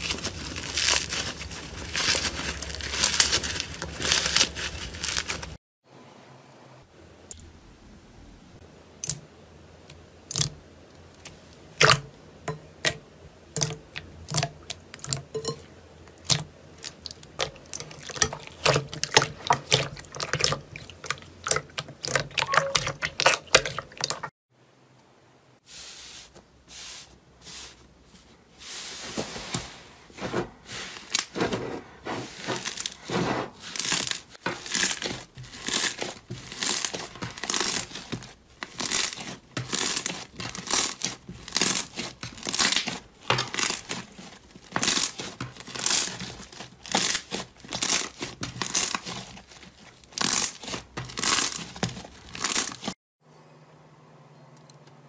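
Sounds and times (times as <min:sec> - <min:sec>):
slime crackling and popping: 0:00.0 - 0:05.6, 0:33.8 - 0:52.9
wet slime squishing: 0:00.0 - 0:05.6, 0:10.2 - 0:10.6, 0:12.8 - 0:24.3, 0:30.6 - 0:53.0.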